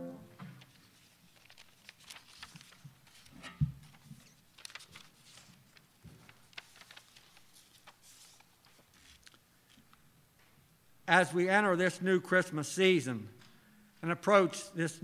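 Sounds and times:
paper rustling: 0.5s - 10.0s.

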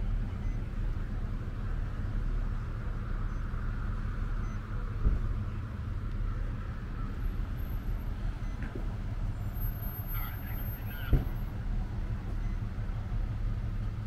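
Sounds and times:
traffic rumble: 0.0s - 14.0s
short thump: 5.0s - 5.3s.

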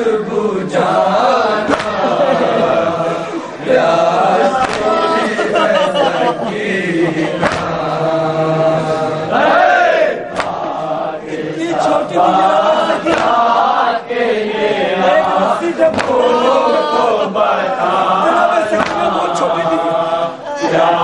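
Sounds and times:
man reciting: 0.0s - 9.3s, 10.8s - 21.0s
men chanting a lament: 0.0s - 21.0s
chest-beating slaps: 1.6s - 2.1s, 4.5s - 5.0s, 6.0s - 7.9s, 10.3s - 10.8s, 13.1s - 13.5s, 15.9s - 16.2s, 18.8s - 19.2s.

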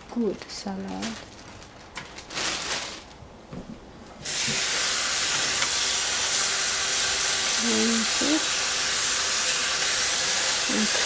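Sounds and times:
plastic bag rustling: 0.0s - 5.6s.

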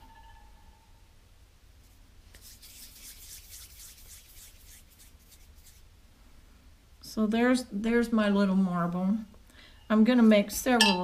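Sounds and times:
hands rubbing clay: 1.8s - 5.9s.

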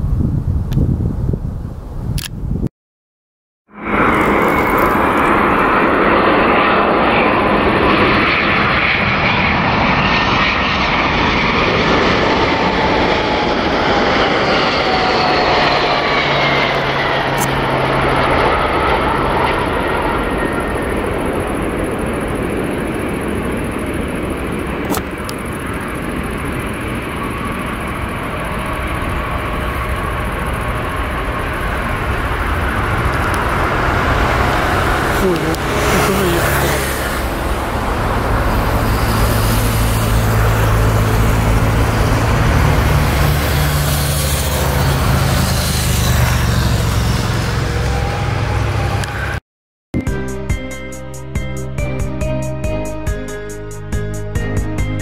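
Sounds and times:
jet engines roaring: 3.7s - 49.4s.

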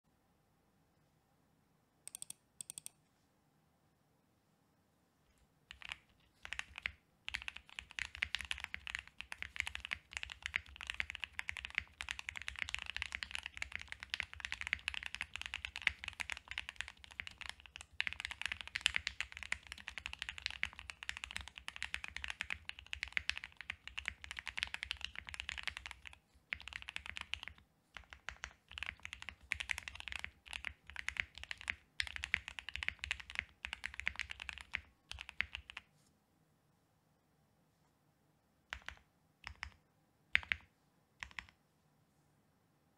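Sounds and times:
mechanical keyboard typing: 2.1s - 2.9s, 5.7s - 35.8s, 38.7s - 41.6s.

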